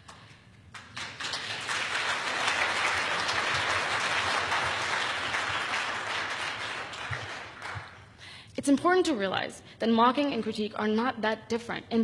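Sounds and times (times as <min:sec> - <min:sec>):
audience applauding: 0:00.7 - 0:08.2.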